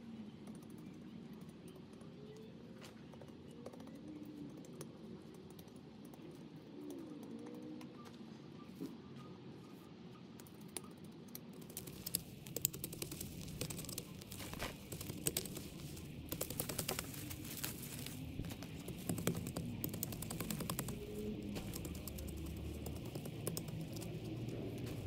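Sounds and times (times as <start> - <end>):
crackling clicks: 10.4 - 25.0.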